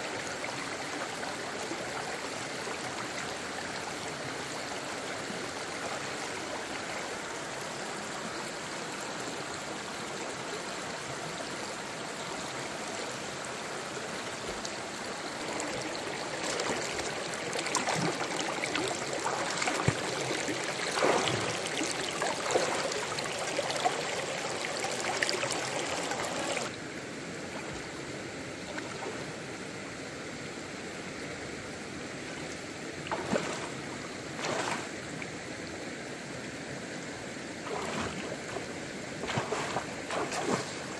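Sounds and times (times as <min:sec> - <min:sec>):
stream running over rocks: 0:00.0 - 0:40.9
splashing footsteps in water: 0:20.9 - 0:21.6, 0:39.2 - 0:40.8.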